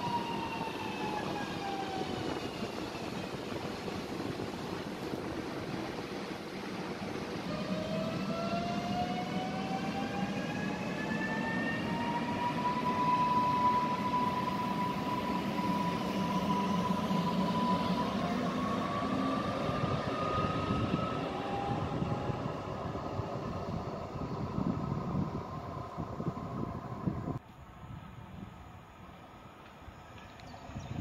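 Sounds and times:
electric train motor whine: 0.0 - 27.4.

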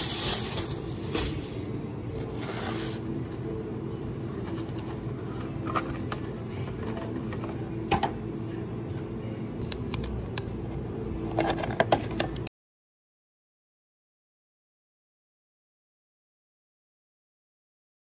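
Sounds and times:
low hum of cafe equipment: 0.0 - 12.5.

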